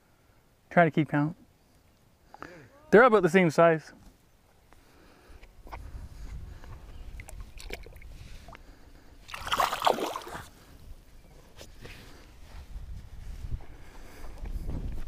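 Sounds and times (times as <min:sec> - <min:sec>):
fish splashing into water: 0:07.2 - 0:08.0, 0:09.3 - 0:10.5.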